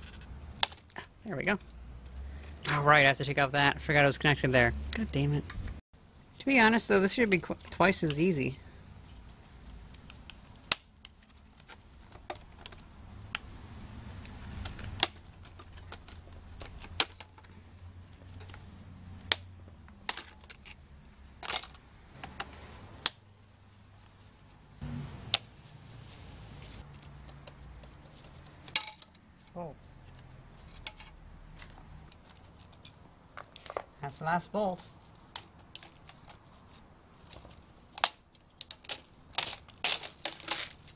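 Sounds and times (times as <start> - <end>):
hand tool clicking and clinking: 28.4 - 29.6.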